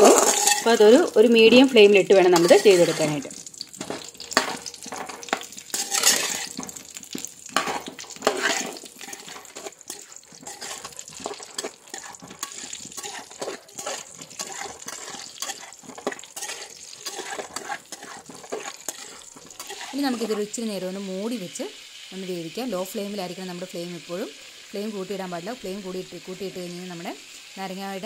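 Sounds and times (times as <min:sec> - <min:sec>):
metal spatula scraping wok: 0:00.0 - 0:20.7
oil sizzling: 0:00.0 - 0:28.0.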